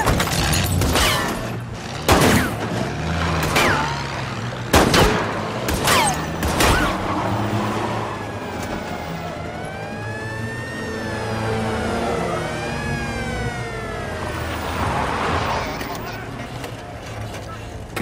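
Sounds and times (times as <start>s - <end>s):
gunshots: 4.7s - 7.1s
siren rising: 6.0s - 16.1s.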